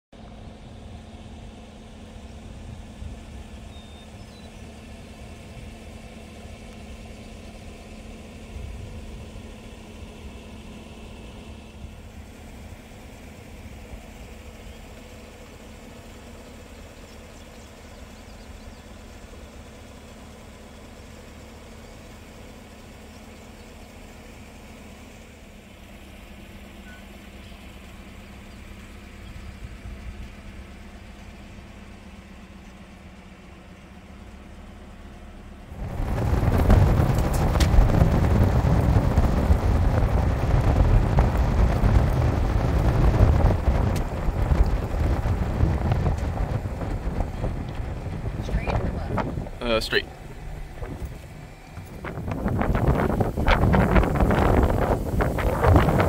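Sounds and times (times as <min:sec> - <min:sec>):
vehicle engine idling: 0:00.0 - 0:56.0
uneven low rumble: 0:35.6 - 0:56.0.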